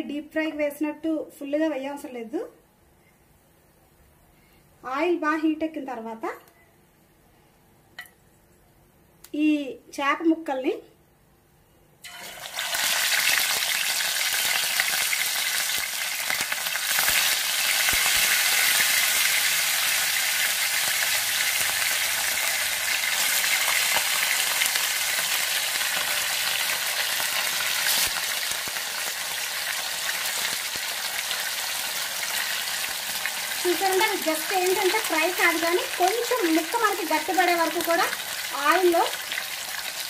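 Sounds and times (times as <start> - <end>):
fish sizzling in oil: 12.0 - 40.0.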